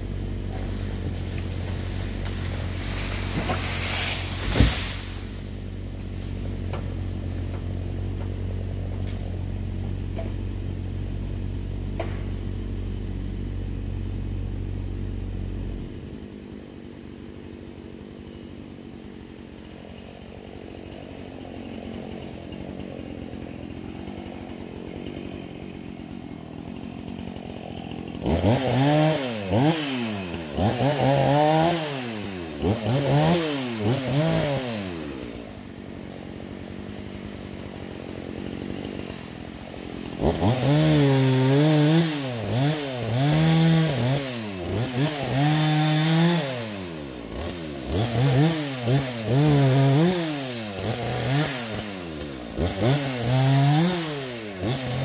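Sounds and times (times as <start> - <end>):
excavator engine running: 0.0 - 31.2
chainsaw revving: 0.0 - 55.0.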